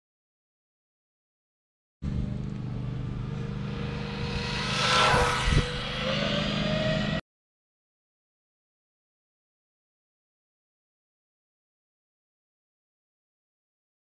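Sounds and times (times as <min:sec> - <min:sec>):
rc truck motor whining past: 0:02.1 - 0:07.2.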